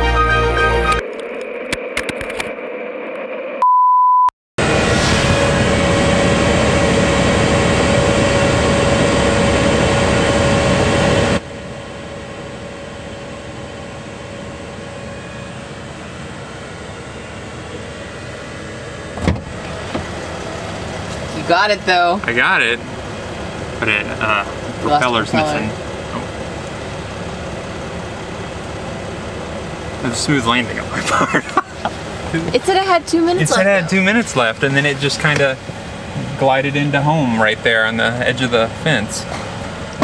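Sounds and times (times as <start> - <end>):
high beep: 3.6 - 4.3
van engine idling: 4.6 - 40.0.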